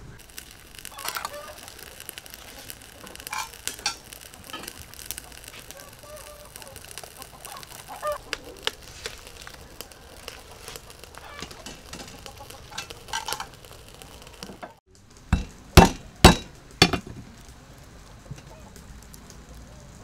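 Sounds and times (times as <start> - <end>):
wood fire crackling: 0.0 - 20.0
chickens clucking: 0.9 - 1.8, 5.0 - 14.8, 18.1 - 18.8.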